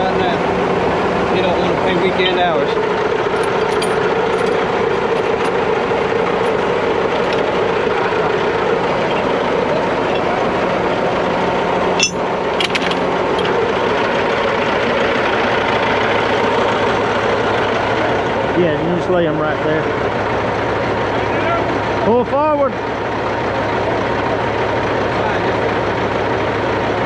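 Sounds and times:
diesel engine idling: 0.0s - 27.0s
sharp metallic clank: 11.9s - 13.6s.

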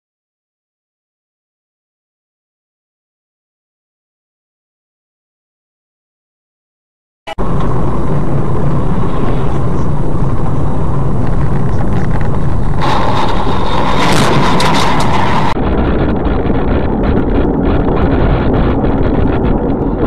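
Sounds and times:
car engine and road noise: 7.3s - 20.0s.

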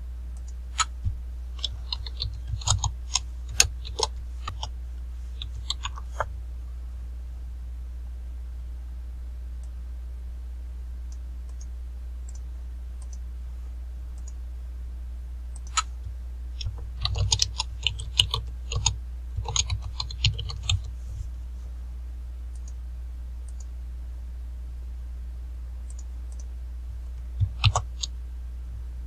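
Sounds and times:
steady low hum: 0.0s - 29.0s
computer keyboard typing: 1.6s - 4.7s, 5.4s - 6.3s, 16.6s - 20.9s, 27.4s - 28.1s.

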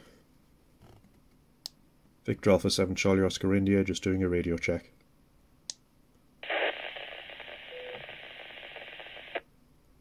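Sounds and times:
radio click: 6.4s - 9.4s
radio speaker hiss: 6.4s - 9.4s
faint radio tone: 6.4s - 9.5s.

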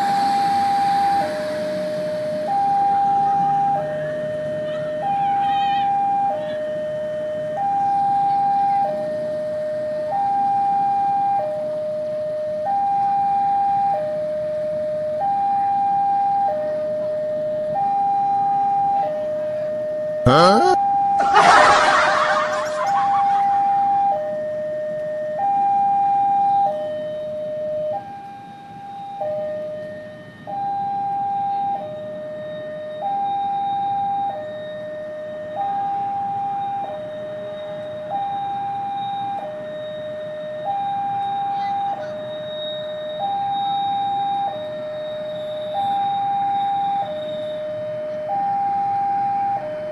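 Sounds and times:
loud rushing noise: 21.2s - 24.1s
level crossing two-tone alarm: 21.2s - 24.2s.

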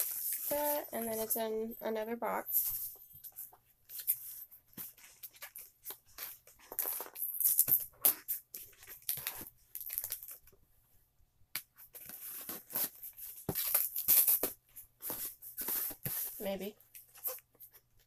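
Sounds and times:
tearing packing tape and cardboard: 12.0s - 16.4s.

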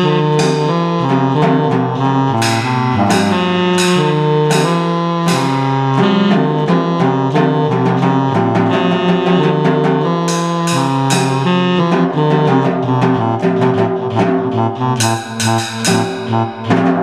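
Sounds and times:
keyboard music: 0.0s - 17.0s
snare drum: 0.0s - 17.0s
cymbal crashes: 2.3s - 6.2s, 10.3s - 11.8s, 15.0s - 17.0s.

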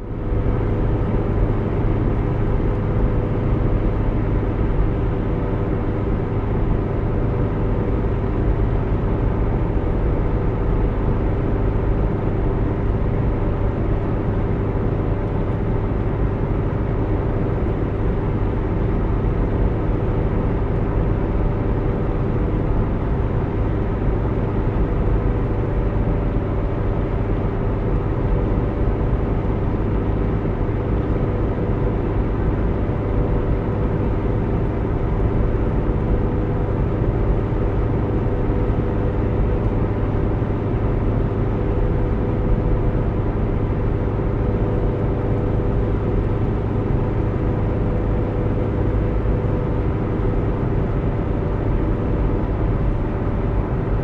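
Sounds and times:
car road and engine noise: 0.0s - 54.0s.

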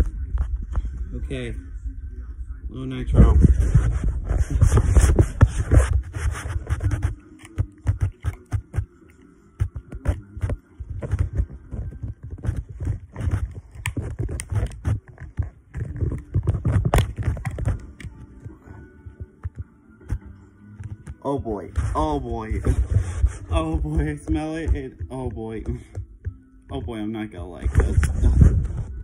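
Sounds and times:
handling clicks and scrapes: 3.2s - 18.6s.

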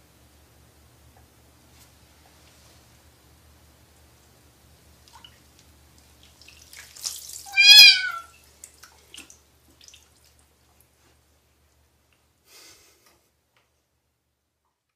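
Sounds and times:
water dripping: 5.0s - 11.0s
water splash: 6.2s - 10.3s
kitten meowing: 7.5s - 8.3s.

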